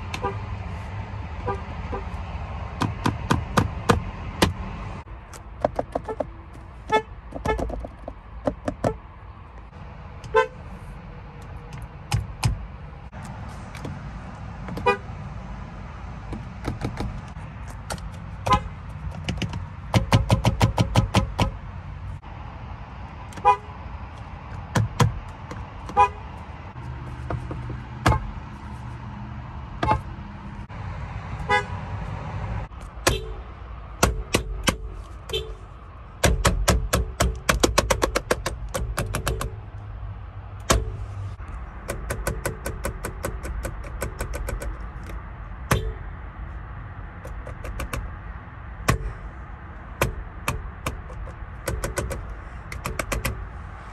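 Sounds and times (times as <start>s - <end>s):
car horn beeps: 1.4s - 2.2s, 10.3s - 10.6s, 14.8s - 15.1s, 18.4s - 18.8s, 23.4s - 23.8s, 25.9s - 26.2s, 29.8s - 30.1s, 31.4s - 31.7s, 33.0s - 33.5s, 35.2s - 35.6s, 45.7s - 46.1s.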